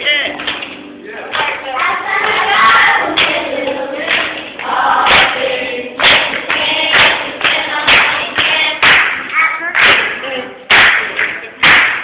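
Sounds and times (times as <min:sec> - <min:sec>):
sharp beats: 0:00.2 - 0:12.0
children's choir singing: 0:01.2 - 0:10.8.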